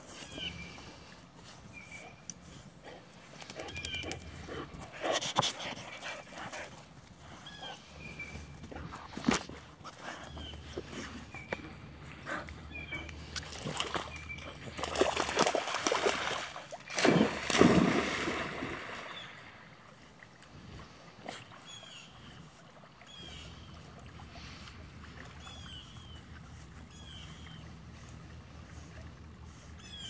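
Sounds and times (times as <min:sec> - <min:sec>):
bird calling: 0:03.6 - 0:04.4
dogs splashing in water: 0:12.4 - 0:19.8.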